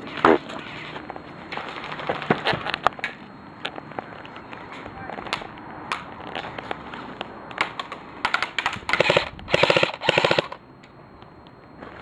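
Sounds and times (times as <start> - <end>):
airsoft rifle full-auto bursts: 8.9 - 10.6.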